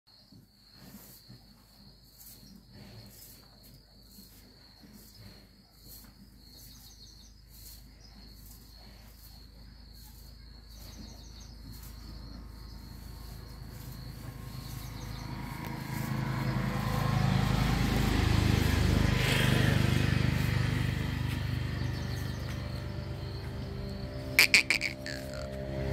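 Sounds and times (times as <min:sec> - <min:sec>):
high-pitched insect trill: 0:05.9 - 0:25.9.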